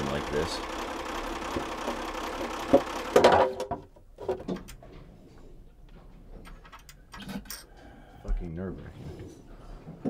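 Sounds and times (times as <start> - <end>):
diesel engine running: 0.0 - 3.4
loud engine clatter: 0.0 - 3.7.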